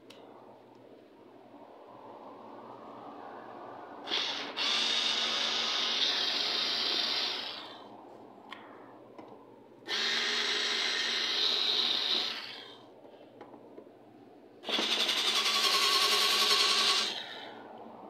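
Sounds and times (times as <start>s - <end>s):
electric screwdriver running: 9.9s - 12.4s, 14.6s - 17.2s.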